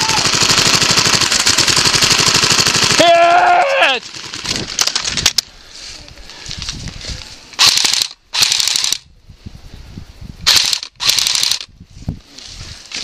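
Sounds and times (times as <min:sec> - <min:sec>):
airsoft rifle full-auto bursts: 0:00.2 - 0:03.1, 0:07.6 - 0:09.0, 0:10.5 - 0:11.7.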